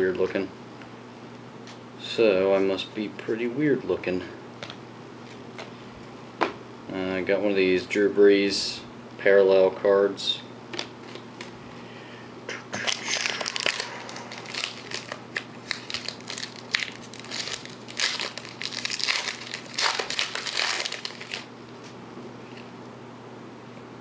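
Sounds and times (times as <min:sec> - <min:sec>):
foil wrapper crinkling and tearing: 0:12.8 - 0:21.5.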